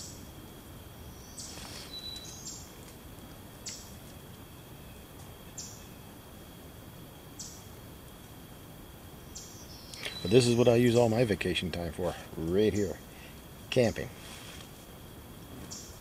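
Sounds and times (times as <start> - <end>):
faint high hum: 0.0 - 16.0
small bird chirping: 1.0 - 2.8, 3.6 - 4.0, 4.6 - 6.1, 7.4 - 7.7, 9.3 - 10.7, 15.6 - 16.0.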